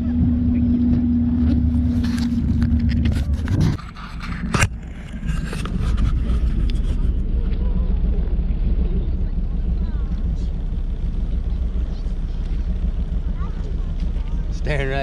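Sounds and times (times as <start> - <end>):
motorboat engine humming: 0.0 - 15.0
camera handling rubbing: 1.9 - 7.2.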